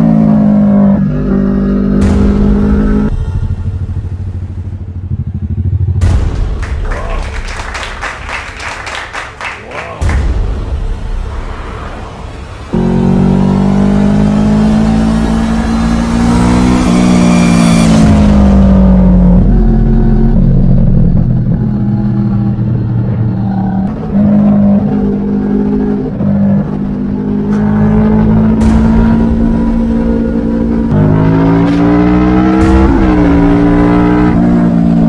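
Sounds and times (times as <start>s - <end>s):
motorcycle engine accelerating: 0.0s - 6.6s, 12.7s - 35.0s.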